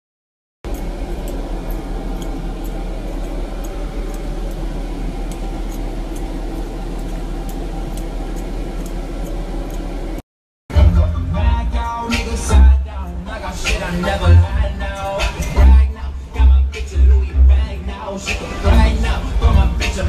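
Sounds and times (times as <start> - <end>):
car driving road noise: 0.7 - 10.2, 11.4 - 20.0
rapping over hip-hop music: 10.7 - 20.0.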